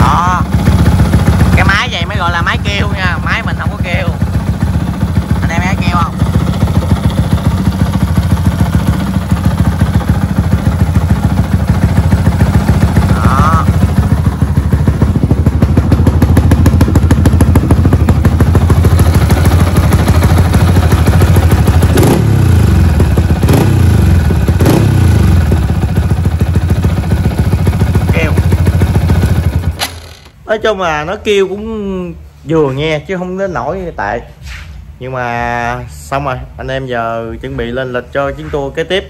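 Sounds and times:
motorcycle engine idling with clatter: 0.0 - 30.4
motorcycle throttle blips: 0.5 - 30.4.

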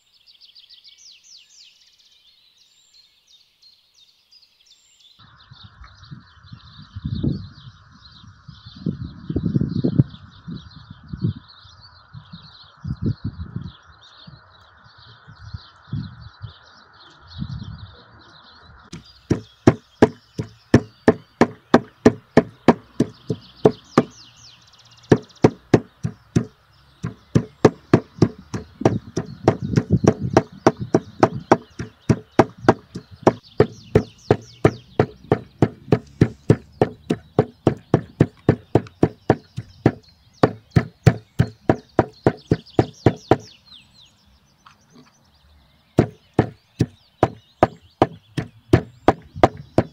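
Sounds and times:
birds chirping: 0.0 - 49.9
meat cleaver chopping on wood block: 19.3 - 24.2, 25.1 - 43.5, 46.0 - 49.9.

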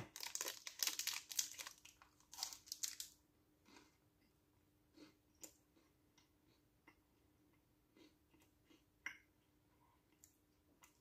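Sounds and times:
plastic wrapper crinkling: 0.0 - 3.2.

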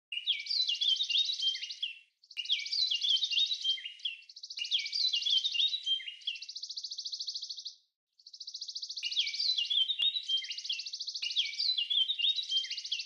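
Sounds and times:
songbird trilling and chirping: 0.1 - 13.0.

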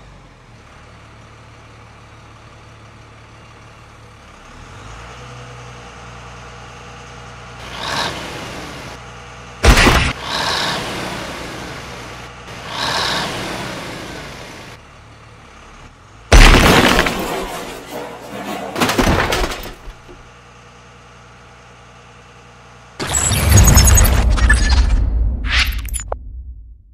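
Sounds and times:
crash with shattering: 16.3 - 20.2
smaller crash: 16.3 - 20.2.

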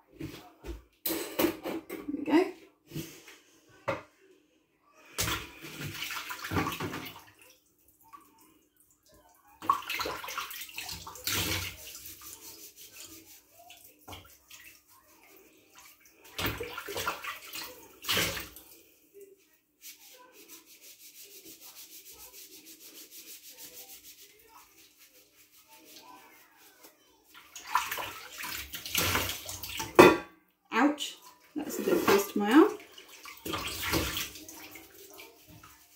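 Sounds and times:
water splashing in metal sink: 5.2 - 8.4, 9.5 - 18.8, 27.4 - 30.2, 31.1 - 35.9
sponge scrubbing: 9.9 - 17.9, 19.8 - 29.7, 31.6 - 35.9.

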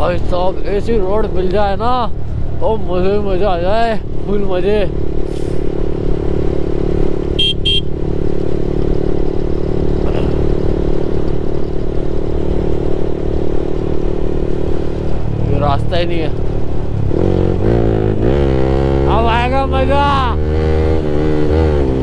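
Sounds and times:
motorcycle engine cruising: 0.0 - 22.0
short horn beeps: 7.4 - 7.9.

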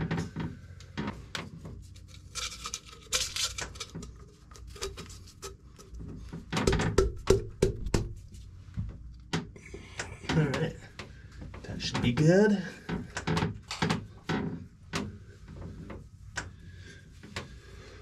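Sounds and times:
knocks and clicks of handling: 4.8 - 8.2.

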